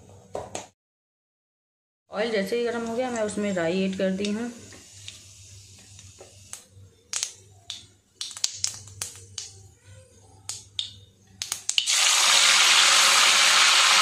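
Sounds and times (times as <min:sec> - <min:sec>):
seeds popping in hot oil: 0:06.1 - 0:09.6, 0:10.5 - 0:14.0
leaves sizzling in oil: 0:11.8 - 0:14.0.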